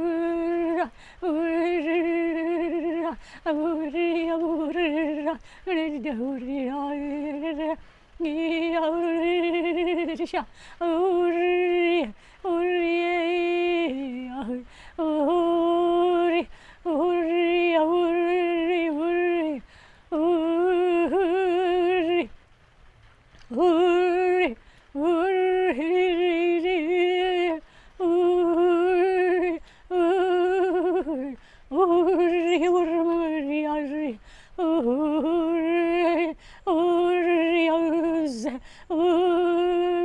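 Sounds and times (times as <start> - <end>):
breaths: 0.9 - 1.2, 3.2 - 3.5, 5.4 - 5.7, 7.8 - 8.2, 10.5 - 10.8, 12.2 - 12.5, 14.6 - 15.0, 16.5 - 16.9, 19.6 - 20.1, 24.6 - 25.0, 27.6 - 28.0, 29.6 - 29.9, 31.4 - 31.7, 34.2 - 34.6, 36.4 - 36.7, 38.6 - 38.9.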